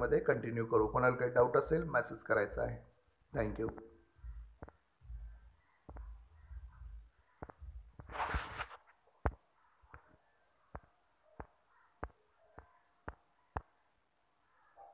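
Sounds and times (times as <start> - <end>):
brief rustle: 8.0 - 9.0.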